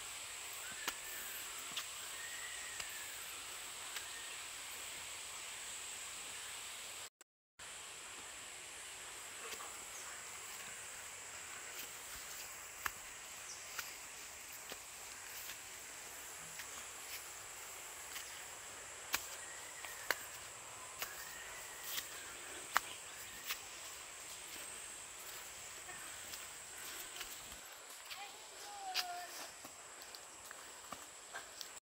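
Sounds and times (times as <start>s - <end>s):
footsteps on dry leaves: 11.5s - 31.6s.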